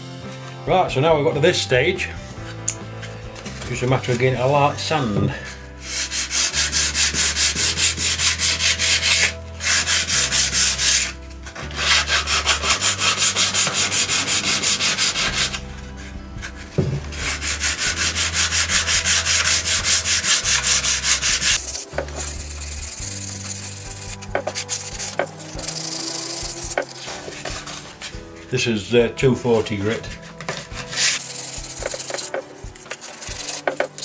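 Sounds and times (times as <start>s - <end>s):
sandpaper rasping strokes: 5.4s - 28.2s, 30.2s - 34.0s.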